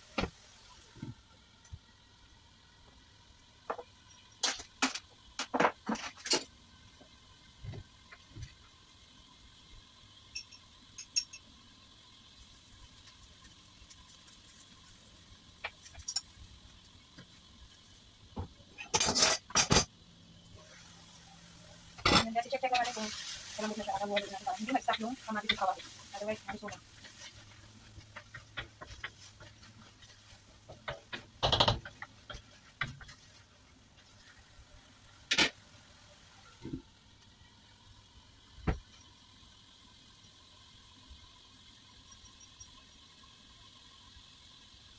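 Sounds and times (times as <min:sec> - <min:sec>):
food sizzling in a wok: 0:00.0 - 0:44.9
pops and ticks of frying: 0:00.0 - 0:44.9
wooden spatula scraping a wok: 0:22.2 - 0:34.5.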